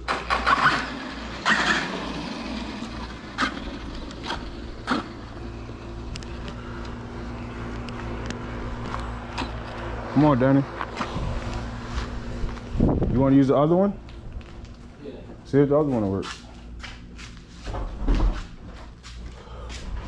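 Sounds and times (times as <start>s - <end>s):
motor humming: 0.2s - 13.1s.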